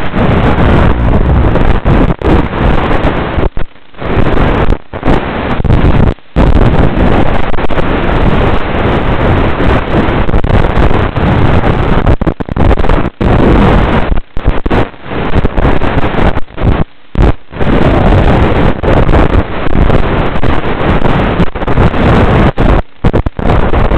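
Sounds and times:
video link rushing noise: 0.0s - 14.0s.

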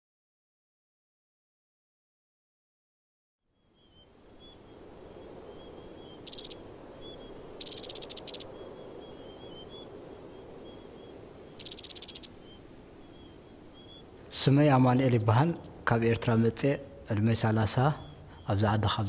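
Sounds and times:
insects chirping: 3.5s - 19.0s
fast pulsing insect trills: 4.2s - 9.9s, 11.6s - 14.0s, 14.8s - 17.0s.

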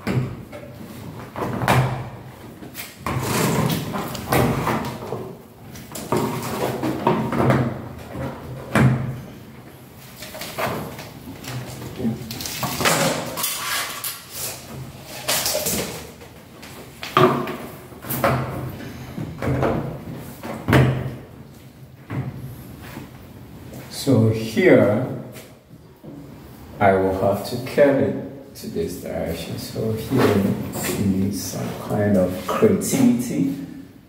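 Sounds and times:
strip rubbing and scraping on metal: 12.3s - 16.0s.

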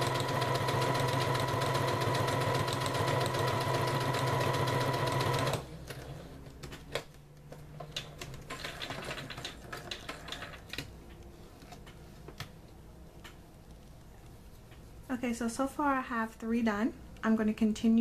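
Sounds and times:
sewing machine running fast: 0.0s - 5.7s.

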